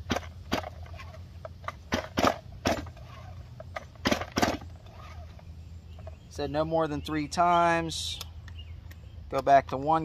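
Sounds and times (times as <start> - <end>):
chainsaw starter rope pulled: 0.0 - 5.4.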